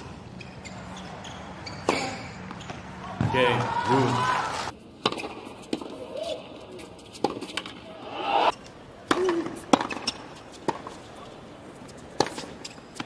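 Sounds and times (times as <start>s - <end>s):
arena hum: 4.5s - 13.0s
racket hitting tennis ball: 5.0s - 6.0s, 7.1s - 11.3s, 12.0s - 13.0s.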